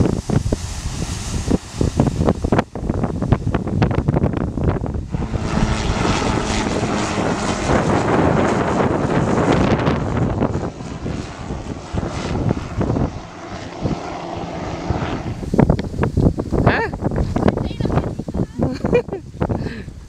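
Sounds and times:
helicopter engine and rotor noise: 5.1 - 15.6.

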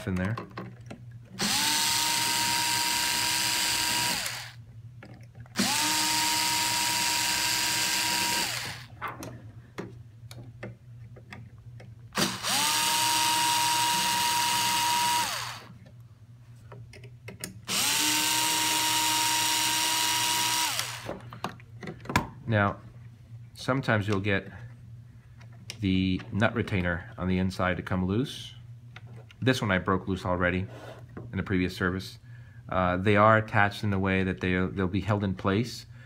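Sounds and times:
cordless drill motor whine: 1.4 - 4.6, 5.6 - 8.9, 12.2 - 15.7, 17.7 - 21.2.

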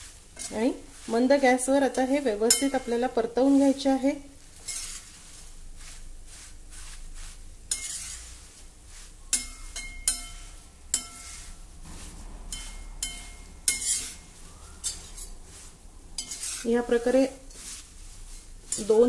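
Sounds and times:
metal spoon scraping in pan: 0.0 - 19.0
spoon clinking against pan: 2.5 - 2.9, 9.3 - 11.4, 12.5 - 14.2.

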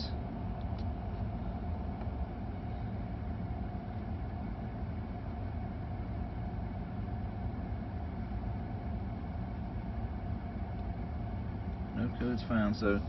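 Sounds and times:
diesel engine idling: 0.0 - 13.0
steady hum: 0.0 - 13.0.

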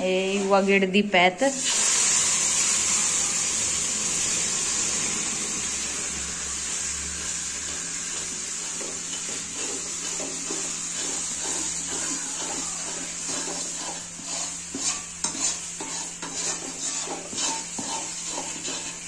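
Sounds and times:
water hissing in hot pan: 0.0 - 19.0
spoon scraping a pan: 7.7 - 19.0.

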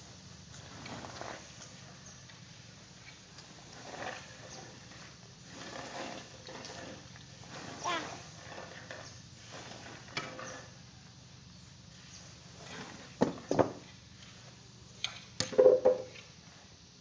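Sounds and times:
rake clattering: 3.0 - 10.8
rake knocking: 15.0 - 16.2.

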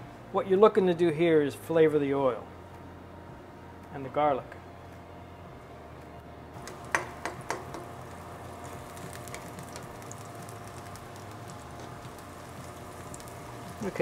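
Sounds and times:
spatula knocking against pan: 6.6 - 7.9
oil sizzling in a wok: 6.6 - 14.0.

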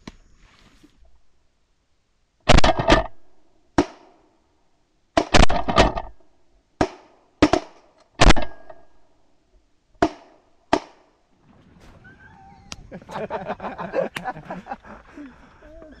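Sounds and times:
shotguns firing: 2.5 - 3.2, 5.2 - 6.1, 6.8 - 8.8.

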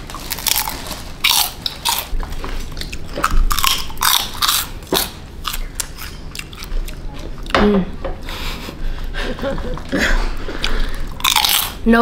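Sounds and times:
crunchy chewing of fried chicken: 0.0 - 7.6, 9.6 - 11.8.

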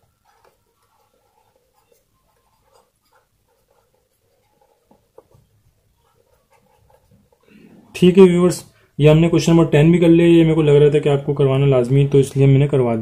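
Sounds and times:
pen scratching on paper: 0.0 - 8.2.

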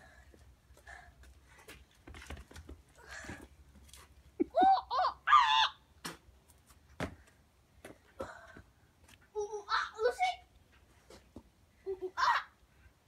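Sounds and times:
child yelling: 9.4 - 10.5, 12.2 - 12.6.

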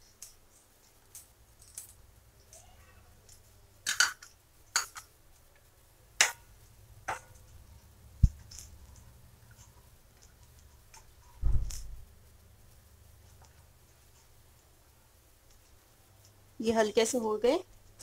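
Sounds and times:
heavy low bump: 11.4 - 12.0.

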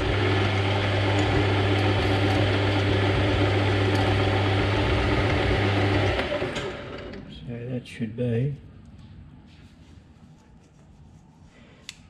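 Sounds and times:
metal lathe cutting: 0.0 - 7.2.

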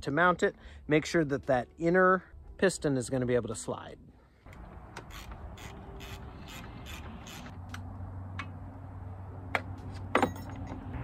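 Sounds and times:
ratchet wrench clicking: 5.0 - 7.5.

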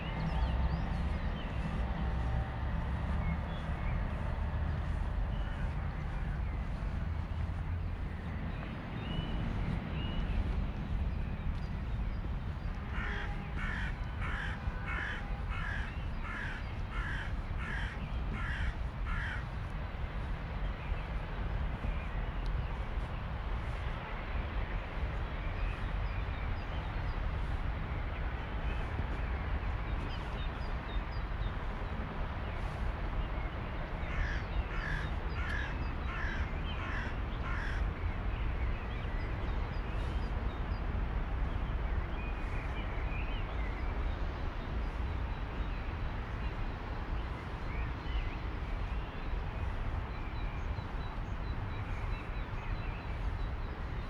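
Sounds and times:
steady low rumble: 0.0 - 54.0
crow cawing: 13.0 - 19.4, 34.1 - 37.8.

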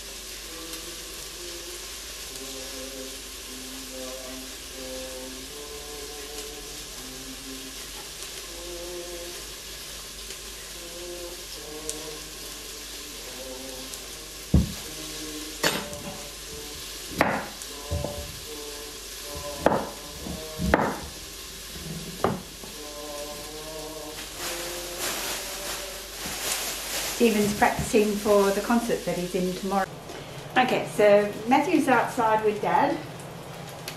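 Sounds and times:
food sizzling in pan: 0.0 - 33.9
knife chopping on wooden board: 17.2 - 17.5, 19.6 - 20.0, 20.6 - 21.1.

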